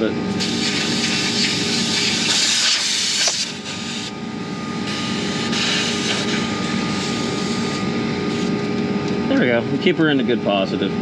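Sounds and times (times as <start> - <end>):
mechanical drone with hum: 0.0 - 11.0
gas hissing from valve: 0.3 - 4.1, 4.9 - 7.7.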